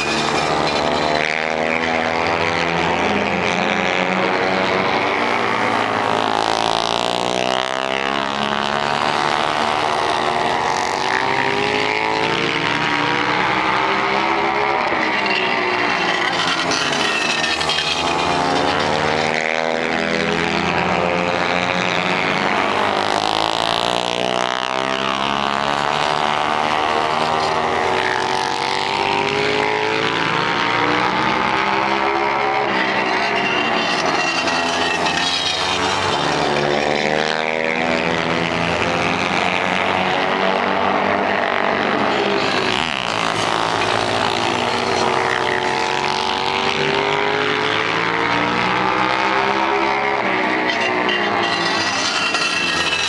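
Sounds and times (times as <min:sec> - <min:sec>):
motorcycles racing: 0:00.0 - 0:53.0
motorcycle passing by: 0:16.3 - 0:31.9.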